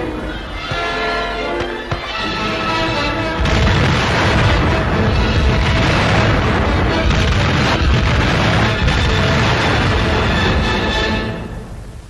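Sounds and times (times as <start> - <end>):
orchestral music: 0.0 - 12.0
loud explosion with rumble: 3.4 - 11.2.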